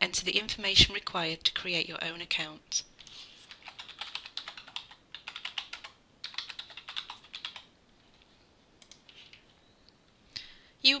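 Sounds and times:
computer keyboard typing: 3.5s - 7.7s, 8.8s - 9.4s.

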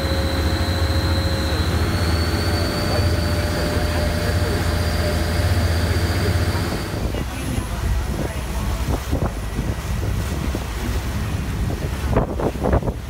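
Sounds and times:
faint high whine: 0.0s - 7.7s
churning wake water: 0.0s - 13.0s
motorboat engine humming: 0.0s - 13.0s.

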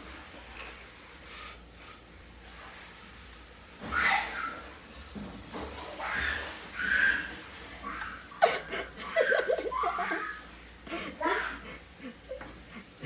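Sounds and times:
person laughing: 8.4s - 13.0s.

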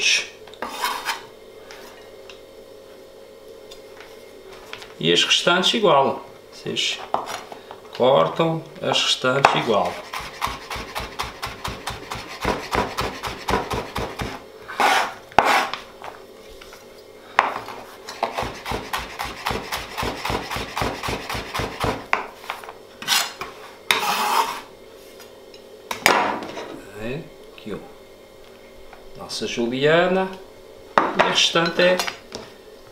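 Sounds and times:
knife scraping across board: 0.6s - 1.3s, 9.7s - 15.8s, 23.0s - 24.7s.

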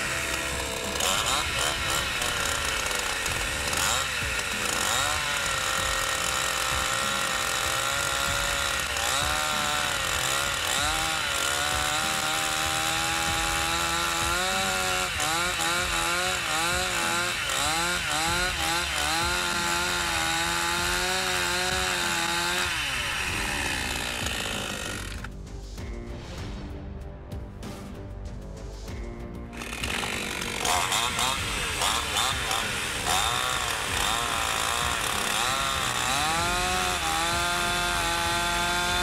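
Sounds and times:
chainsaw cutting ice: 0.0s - 25.3s, 29.6s - 39.0s.

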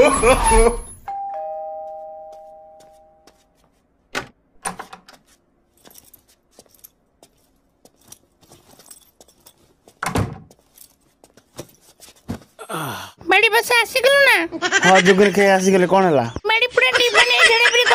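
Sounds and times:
doorbell chime: 1.0s - 3.3s.

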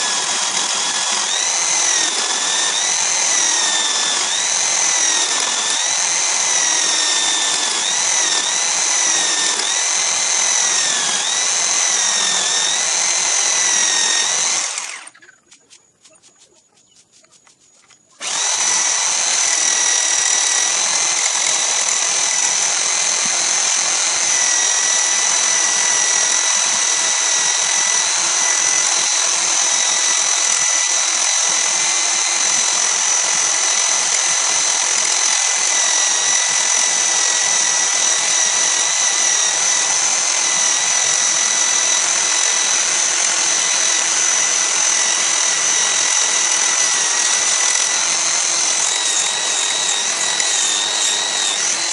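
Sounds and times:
power tool motor whine: 0.0s - 15.2s, 17.9s - 51.9s
cutter shaving spinning wood: 0.0s - 51.9s.

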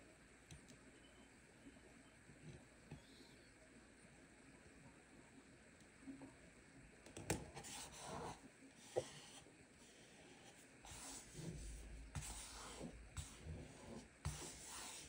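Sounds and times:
faint rustling of adhesive sheet: 7.6s - 15.0s.

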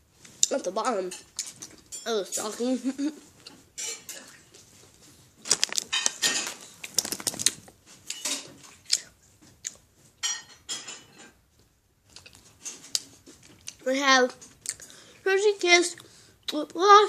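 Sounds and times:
candy packaging crinkling: 5.4s - 7.8s.

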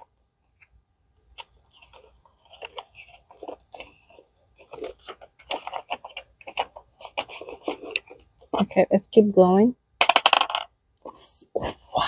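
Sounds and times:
paper money and plastic rustling: 1.3s - 8.7s.

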